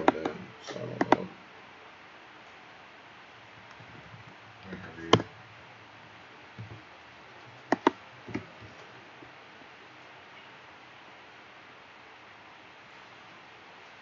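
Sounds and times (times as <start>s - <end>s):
computer mouse clicking: 0.0s - 0.4s, 1.0s - 1.3s, 7.7s - 8.5s
faint background noise: 0.0s - 14.0s.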